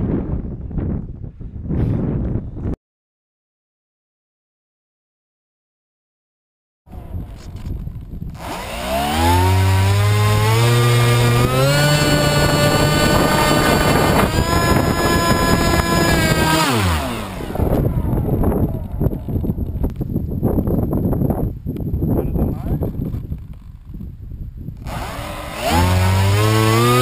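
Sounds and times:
model plane electric motor whine: 6.9 - 19.2, 24.8 - 27.0.

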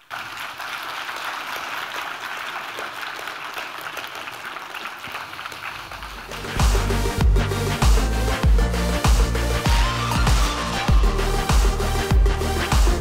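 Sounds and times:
audience applauding: 0.0 - 8.1
music with low beat: 6.3 - 13.0.

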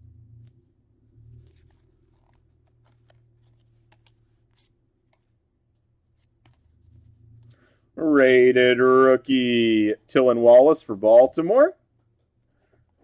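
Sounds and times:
low steady hum: 0.0 - 13.0
trading cards flipped by hand: 1.2 - 7.8.

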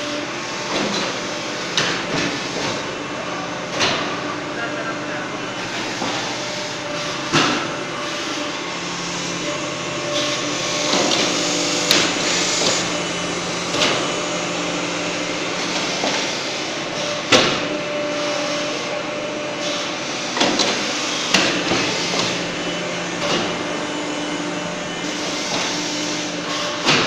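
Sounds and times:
press mechanical hum: 0.0 - 27.0.

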